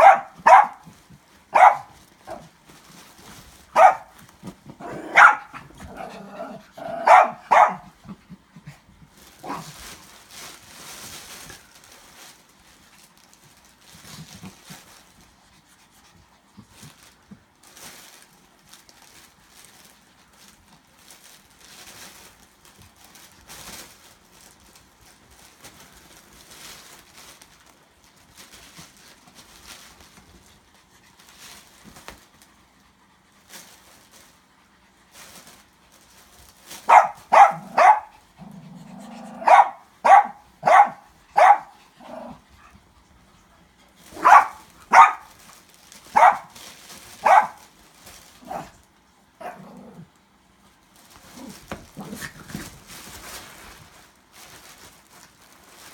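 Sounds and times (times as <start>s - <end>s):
small dogs yapping: 0.0s - 0.9s, 1.5s - 2.5s, 3.8s - 4.2s, 4.8s - 8.0s, 36.9s - 38.2s, 38.9s - 42.4s, 44.2s - 45.3s, 46.1s - 46.6s, 47.2s - 47.6s
faint scuffling: 0.0s - 15.4s, 35.1s - 38.2s, 39.2s - 41.8s, 43.9s - 49.6s, 50.8s - 55.9s.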